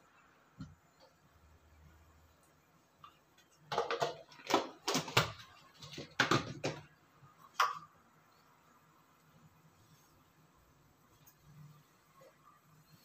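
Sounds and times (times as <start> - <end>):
kitchen utensils clicking and knocking: 3.7 - 6.9.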